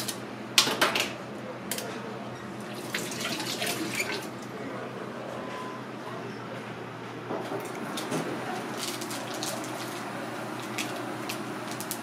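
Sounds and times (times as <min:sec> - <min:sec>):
water splashing into a steel sink: 0:02.7 - 0:04.3.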